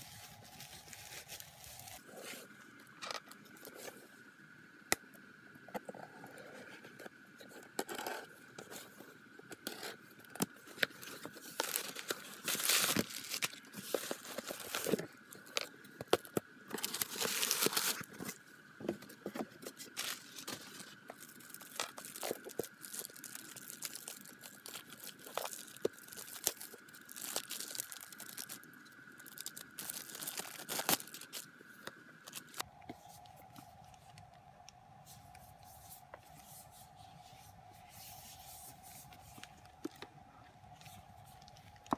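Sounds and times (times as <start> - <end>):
plastic crinkling: 0.0 - 2.2, 10.4 - 18.4, 19.6 - 34.2
cardboard tearing and scraping: 11.1 - 15.1, 16.8 - 18.4, 19.8 - 20.9, 29.5 - 31.4.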